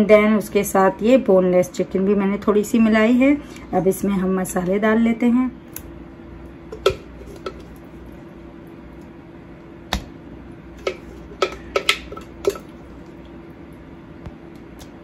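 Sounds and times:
spoon clinking on containers: 0:10.8 - 0:12.8.

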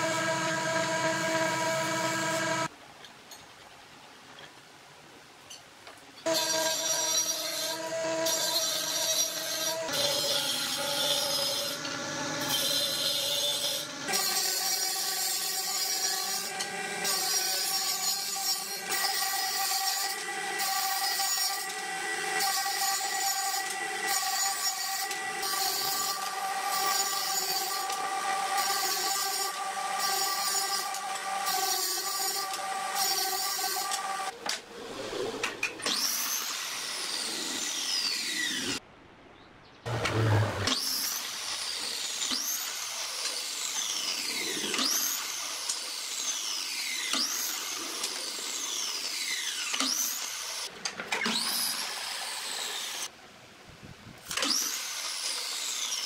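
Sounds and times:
power tool whine with pulsing hiss: 0:00.0 - 0:02.7, 0:06.3 - 0:34.4, 0:40.2 - 0:53.1.

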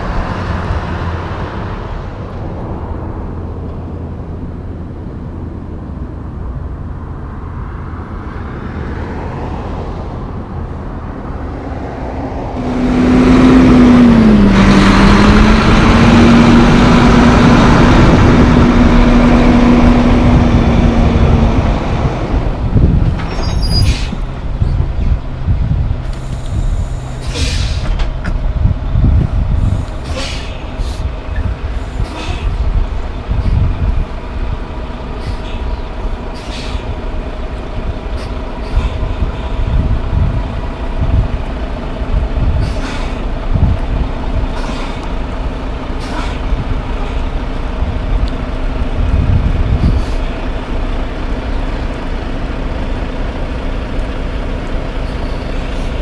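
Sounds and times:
diesel truck engine: 0:00.0 - 0:56.0
high brake squeal: 0:23.3 - 0:24.2, 0:26.2 - 0:28.0, 0:29.6 - 0:31.1, 0:35.2 - 0:36.9, 0:55.0 - 0:56.0
air brake hisses: 0:26.1 - 0:28.0, 0:29.6 - 0:31.1, 0:31.7 - 0:32.6, 0:36.3 - 0:36.9, 0:42.6 - 0:43.3, 0:44.6 - 0:45.1, 0:46.0 - 0:46.4.

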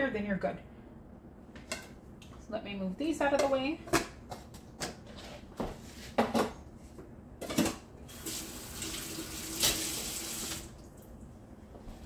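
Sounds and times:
faucet running into sink: 0:08.1 - 0:10.8.

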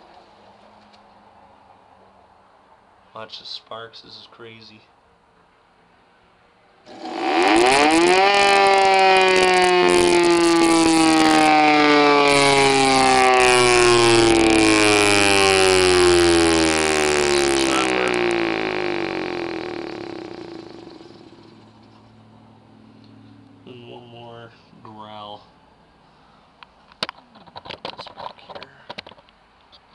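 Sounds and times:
motor brushes crackling: 0:06.9 - 0:22.2
siren rotor whine: 0:06.9 - 0:23.4.

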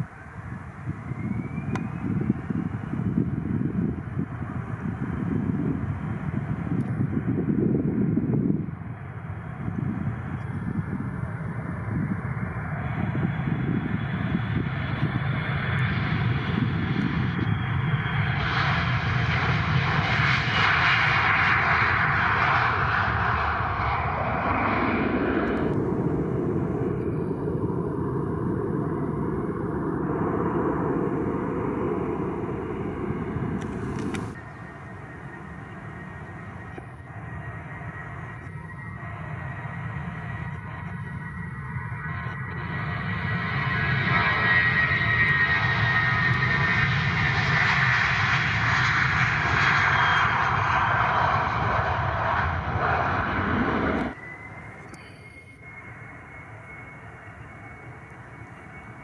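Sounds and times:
jet engines rumbling: 0:00.0 - 0:59.0.

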